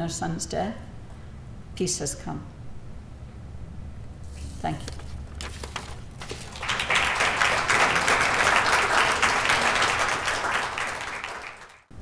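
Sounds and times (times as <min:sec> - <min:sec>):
audience applauding: 0:06.3 - 0:11.9.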